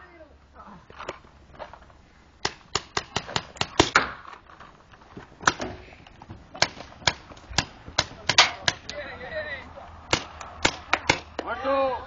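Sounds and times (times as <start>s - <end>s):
paintball markers firing pops: 2.4s - 4.3s.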